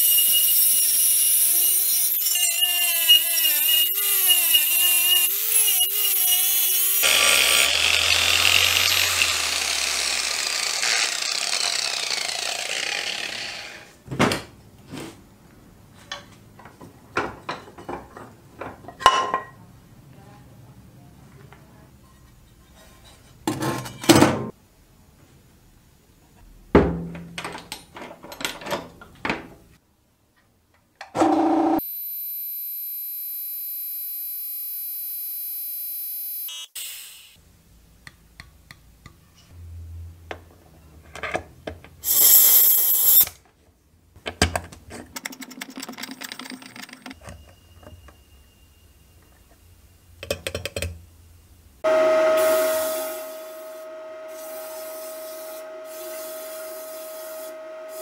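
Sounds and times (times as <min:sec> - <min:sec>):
steady whine-like tone: 0:51.9 - 0:56.7.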